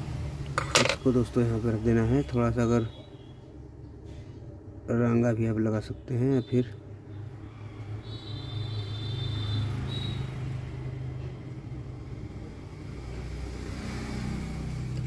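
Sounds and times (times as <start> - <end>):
faint high whine: 0.0 - 3.5, 4.1 - 10.6.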